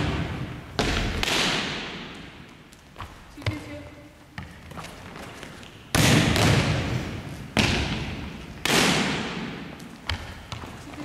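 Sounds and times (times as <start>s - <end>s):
volleyball struck hard: 5.9s - 7.0s.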